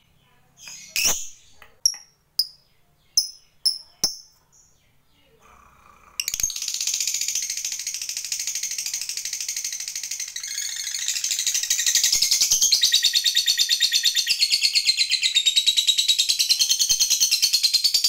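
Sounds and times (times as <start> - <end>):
lovebird chirps: 0.0 - 5.0
lovebird chattering trill: 0.6 - 2.6.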